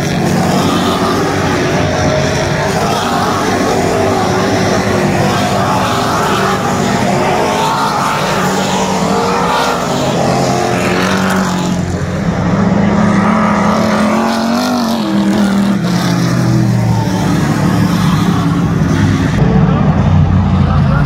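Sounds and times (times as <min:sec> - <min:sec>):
race car engines at speed: 0:00.0 - 0:21.0.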